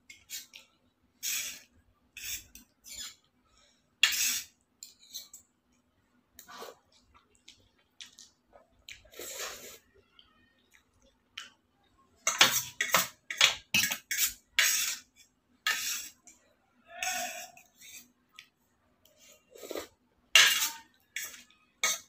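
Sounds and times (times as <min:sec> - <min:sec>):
cutlery scraping a steel plate: 0:04.0 - 0:05.4, 0:12.2 - 0:16.2, 0:20.4 - 0:22.0.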